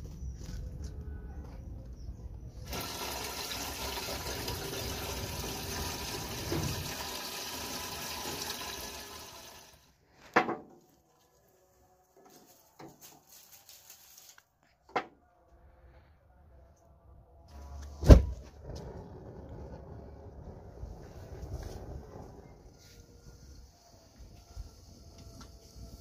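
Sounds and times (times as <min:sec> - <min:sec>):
water gushing from tap: 0:02.7 - 0:09.8.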